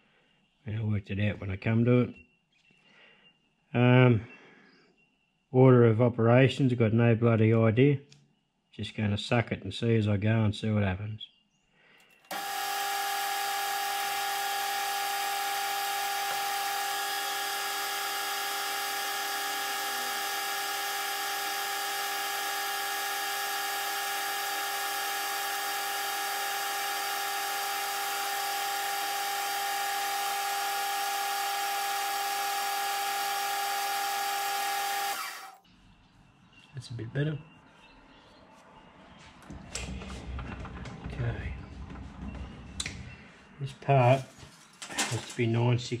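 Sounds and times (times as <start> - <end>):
metal lathe whining: 12.3 - 35.6.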